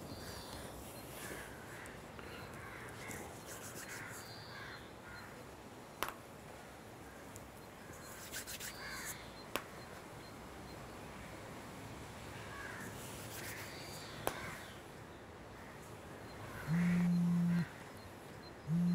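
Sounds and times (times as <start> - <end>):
birds calling: 12.3 - 18.9.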